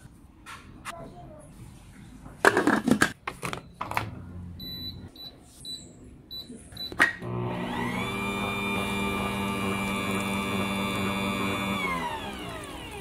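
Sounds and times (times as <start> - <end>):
mixer motor running: 7.2 - 13.0.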